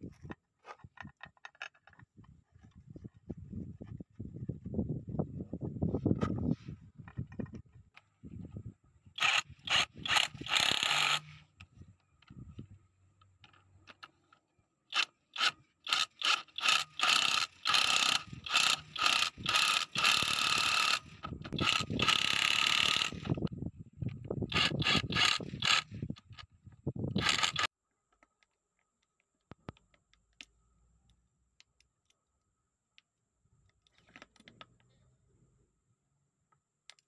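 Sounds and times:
ratcheting mechanical clicks: 9.2s - 11.4s, 14.9s - 23.5s, 24.5s - 26.5s, 27.2s - 27.7s.

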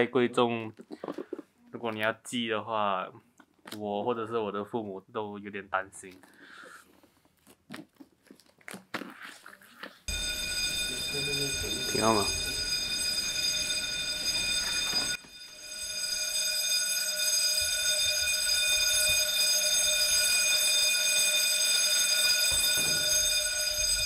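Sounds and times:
building alarm high tone: 10.1s - 24.0s.

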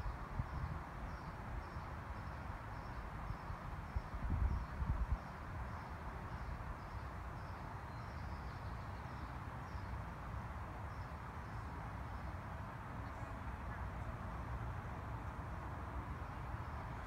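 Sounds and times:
wind buffeting microphone: 4.0s - 5.3s.

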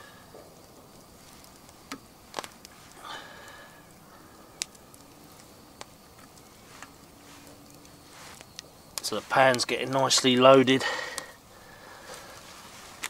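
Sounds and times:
sharp clicks: 4.6s - 10.3s.

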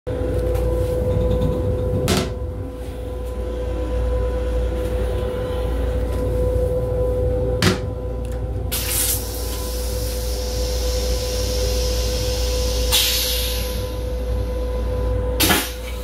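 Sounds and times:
constant hum: 0.1s - 16.0s
low train rumble: 0.1s - 16.0s.

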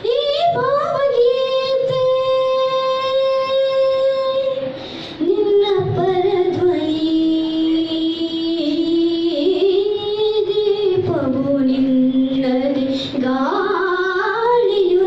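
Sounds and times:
boy singing into a microphone: 0.0s - 15.0s.

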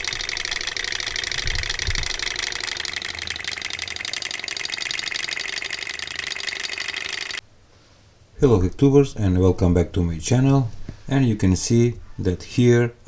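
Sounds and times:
small engine mechanical ticking: 0.0s - 7.4s.

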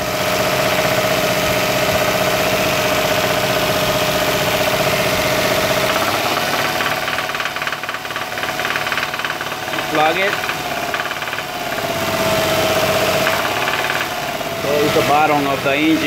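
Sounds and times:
car engine idling with knock: 0.0s - 16.0s.

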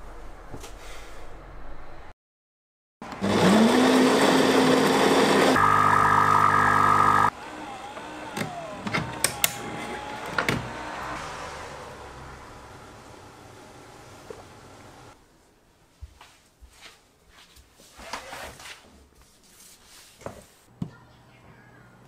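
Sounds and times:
espresso machine pump buzzing: 3.2s - 8.7s.

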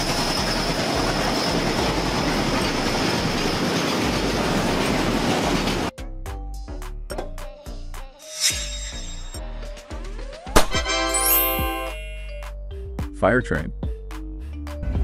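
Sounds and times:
freight train wheels clacking on rails: 0.0s - 5.9s
thin high whine: 8.2s - 9.5s.

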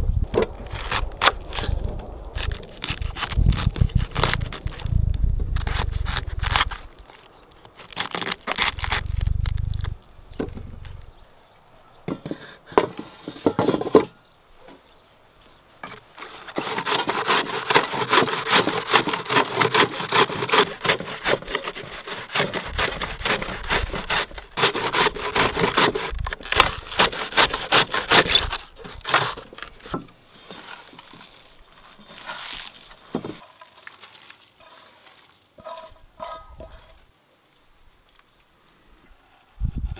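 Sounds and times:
rustling of shredded cabbage: 16.1s - 37.1s
knife cutting cabbage on wooden board: 16.6s - 29.9s.

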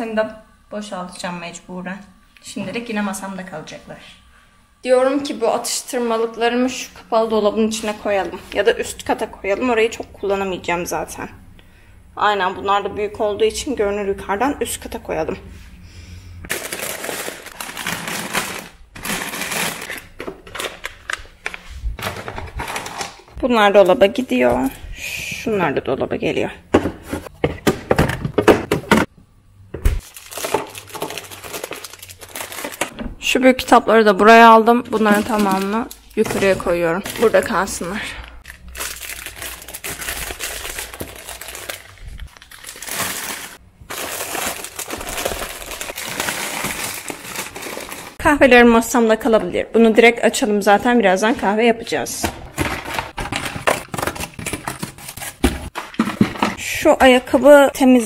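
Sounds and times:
plastic snack packets rustling: 16.5s - 23.2s, 30.0s - 32.9s, 34.9s - 48.2s
plastic wrappers crinkling: 16.5s - 23.3s, 30.0s - 32.9s, 34.8s - 48.2s, 52.5s - 56.6s.

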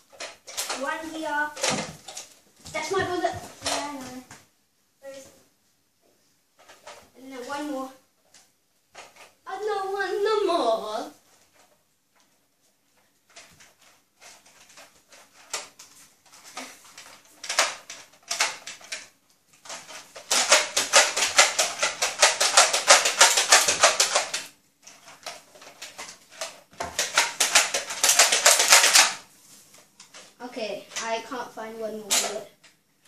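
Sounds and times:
plastic clicking and clattering: 0.0s - 2.4s, 8.3s - 9.4s, 13.0s - 29.2s.

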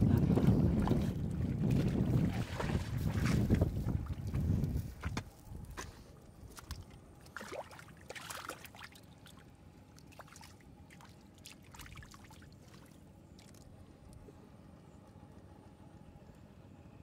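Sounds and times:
hands splashing in muddy water: 0.3s - 4.4s, 6.5s - 9.4s, 10.0s - 13.6s.

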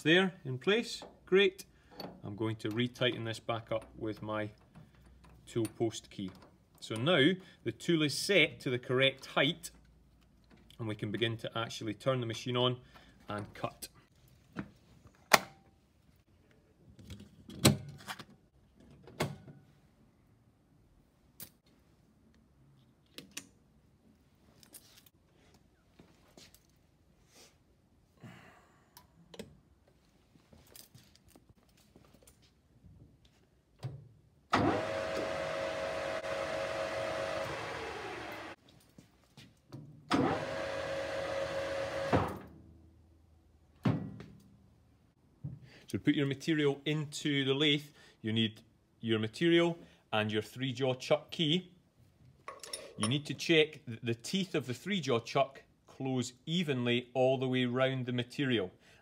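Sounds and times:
lathe motor humming: 34.6s - 38.6s.

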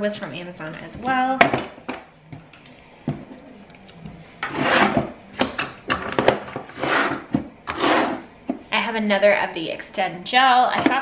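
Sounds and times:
items scraping in drawer: 4.4s - 5.2s, 6.0s - 8.3s.

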